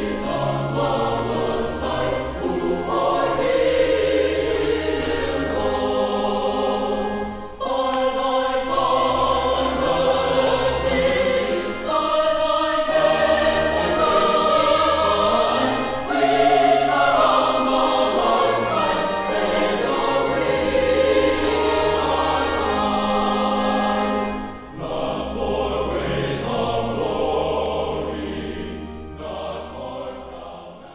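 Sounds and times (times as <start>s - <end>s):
choir singing held notes: 0.0s - 30.9s.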